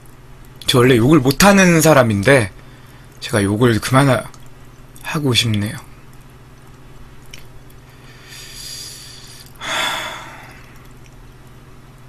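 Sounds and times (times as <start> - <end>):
low steady hum: 0.0 - 12.0
man breathing heavily: 7.9 - 10.8.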